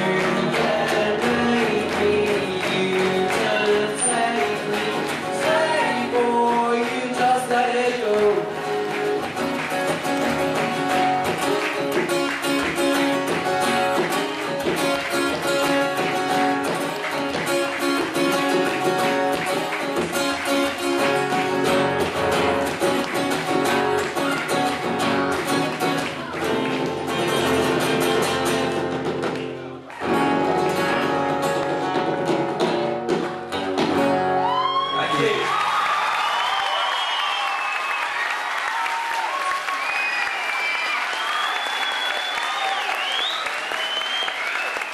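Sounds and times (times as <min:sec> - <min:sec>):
acoustic guitars strumming and picking: 0:00.0 - 0:35.2.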